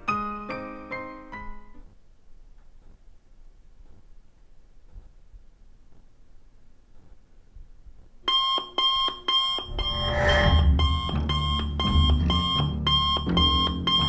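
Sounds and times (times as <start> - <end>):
digital alarm clock beeping: 8.3 - 14.0
low music: 9.7 - 12.3.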